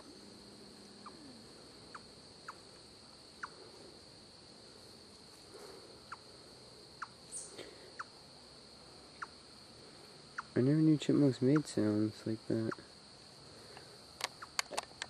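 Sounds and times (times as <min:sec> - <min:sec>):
insects trilling: 0:00.0 - 0:15.0
chipmunk chirps: 0:01.0 - 0:02.6, 0:03.4 - 0:03.6, 0:07.0 - 0:08.1, 0:09.2 - 0:09.4, 0:10.3 - 0:10.6, 0:14.3 - 0:14.6.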